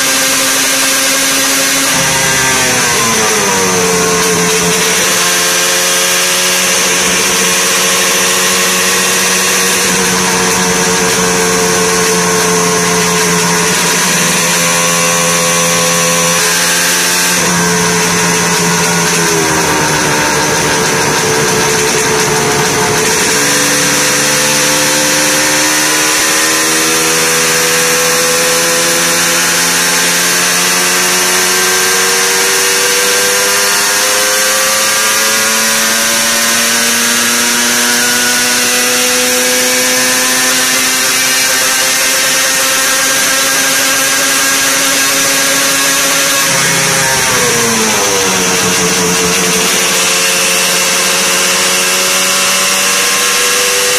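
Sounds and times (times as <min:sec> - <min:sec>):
two-stroke engine revving: 0:00.0 - 0:53.9
steady high whine: 0:01.1 - 0:29.8, 0:40.6 - 0:53.1.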